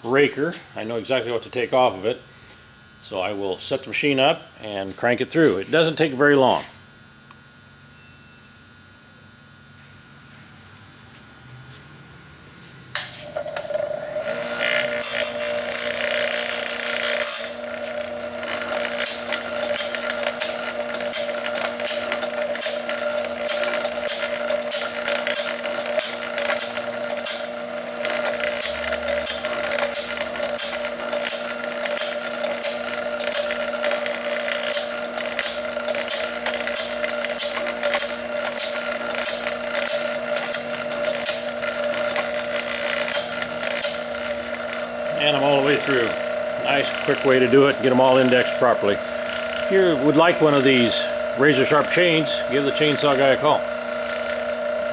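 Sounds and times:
grinding machine motor running: 0.0s - 54.9s
short grinding strokes: 13.1s - 54.9s.

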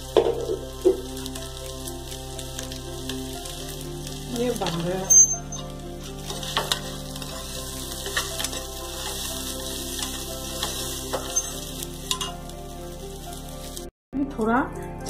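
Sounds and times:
rice sizzling in hot oil: 0.0s - 13.9s
steel spatula scraping pot: 10.0s - 12.4s.

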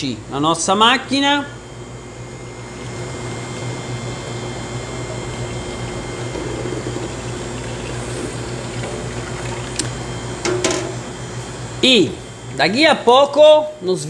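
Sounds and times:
low machine hum: 0.0s - 14.0s
liquid pouring into machine: 4.8s - 10.1s.

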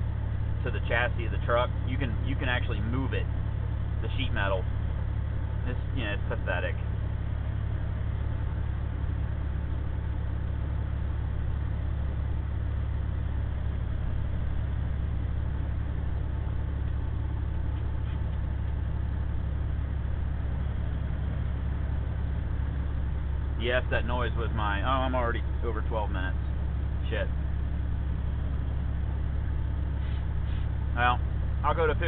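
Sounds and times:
diesel engine hum: 0.0s - 32.0s
road and wind noise: 0.0s - 32.0s.

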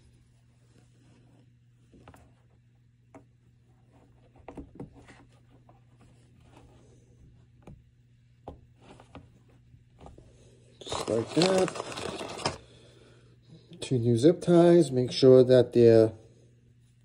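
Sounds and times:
low steady hum: 0.0s - 17.0s
hands handling rubber hose: 10.8s - 12.6s.

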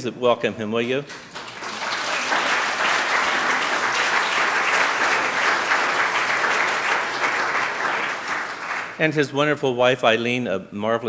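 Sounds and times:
crowd applauding: 1.1s - 9.0s.

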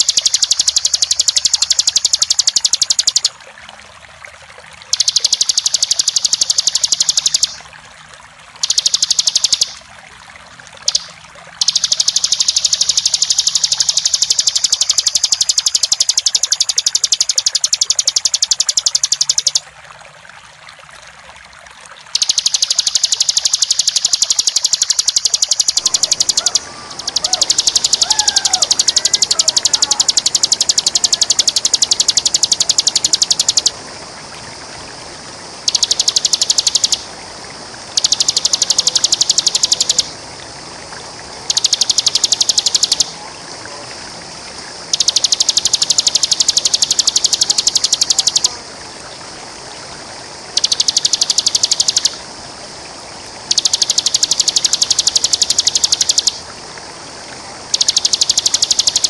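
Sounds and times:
bird rapid rattling song: 0.0s - 3.4s, 4.9s - 7.6s, 8.6s - 9.8s, 10.8s - 19.6s, 22.2s - 33.8s, 35.6s - 37.0s, 37.9s - 40.1s, 41.5s - 43.1s, 44.9s - 48.5s, 50.5s - 52.2s, 53.5s - 56.4s, 57.8s - 59.0s
faint lower bird chirps: 0.0s - 3.4s, 4.9s - 7.6s, 8.6s - 9.9s, 10.8s - 19.6s, 22.2s - 33.8s, 35.6s - 37.1s, 37.9s - 40.2s, 41.5s - 43.2s, 44.9s - 48.6s, 50.5s - 52.2s, 53.5s - 56.4s, 57.7s - 59.0s
running water: 0.0s - 59.0s.

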